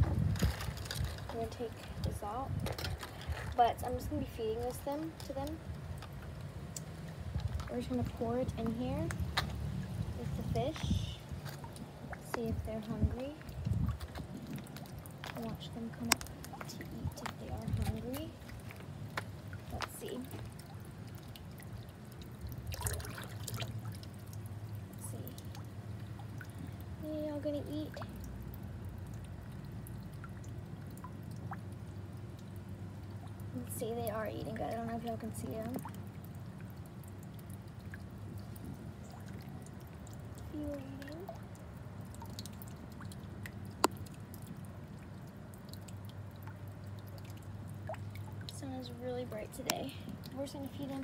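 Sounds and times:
low steady rumble: 0.0 - 51.0
small splashes in fish pond: 0.0 - 51.0
water dripping and trickling: 0.0 - 51.0.

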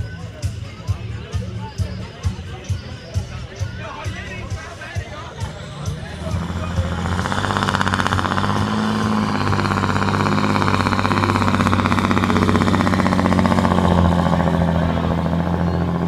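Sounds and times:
tractor engine under full load: 3.9 - 16.0.

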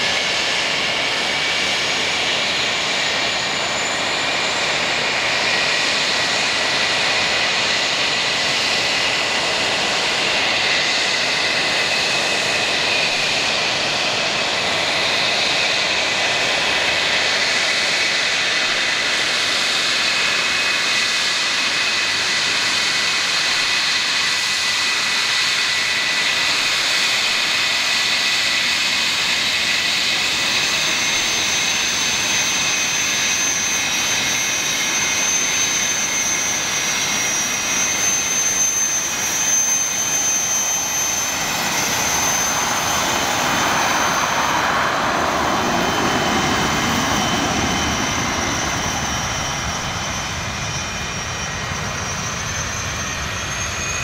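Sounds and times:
jet engines whining: 0.0 - 54.0
jet rush: 25.4 - 54.0.

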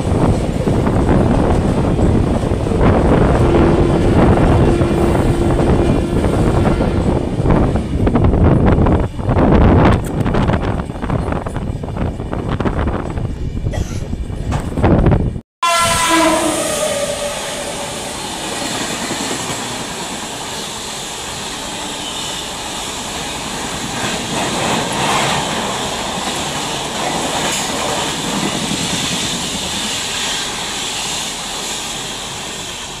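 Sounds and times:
train horn: 3.3 - 7.2, 15.6 - 18.5, 21.7 - 22.6
train coaches rattling past: 15.6 - 33.0.

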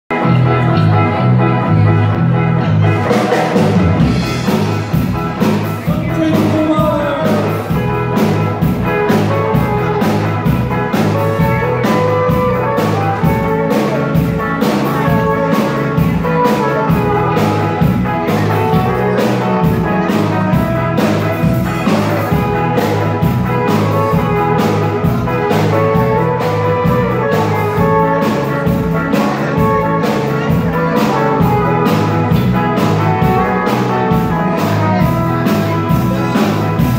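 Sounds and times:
electric guitars: 0.1 - 36.9
low bass line: 0.1 - 36.9
drum kit beat: 2.2 - 36.9.

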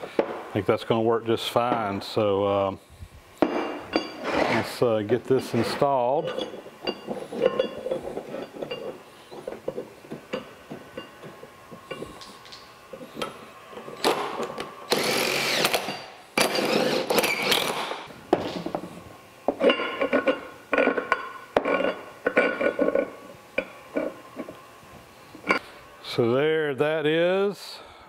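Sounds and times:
power driver motor whine: 11.6 - 18.1.

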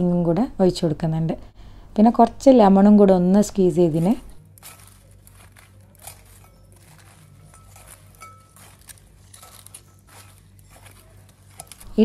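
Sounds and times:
utensils tossing salad: 3.7 - 12.0.

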